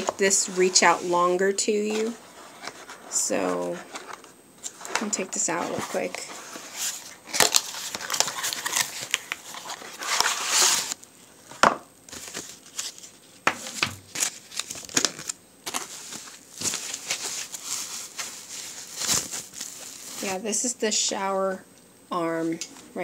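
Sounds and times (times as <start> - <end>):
plastic packaging crinkling: 3.6 - 11.1, 12.1 - 20.5.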